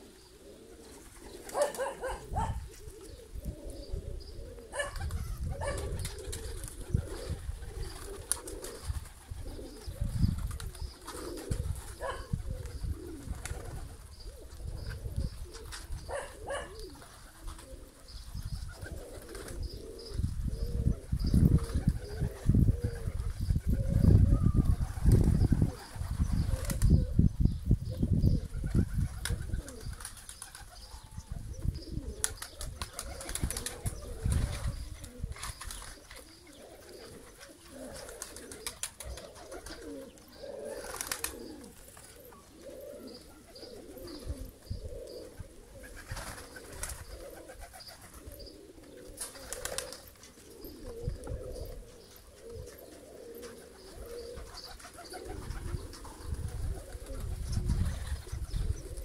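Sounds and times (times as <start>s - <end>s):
pigeons cooing: 0.0s - 59.0s
wing flapping: 37.0s - 40.0s, 40.7s - 42.1s, 49.2s - 50.1s.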